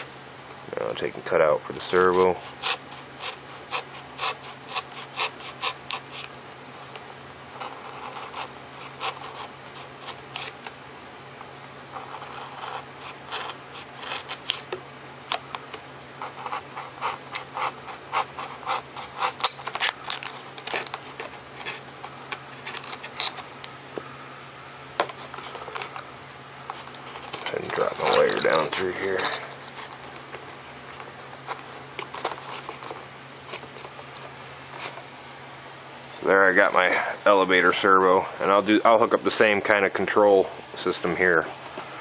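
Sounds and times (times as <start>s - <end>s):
hobby knife scratching foam: 2.0s - 6.3s, 7.5s - 10.6s, 11.9s - 14.8s, 16.2s - 23.5s, 26.7s - 34.0s.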